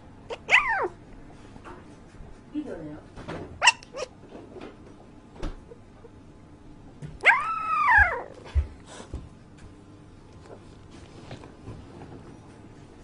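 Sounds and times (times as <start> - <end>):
puppy whimpering howl: 0.3 - 1.0, 7.2 - 8.5.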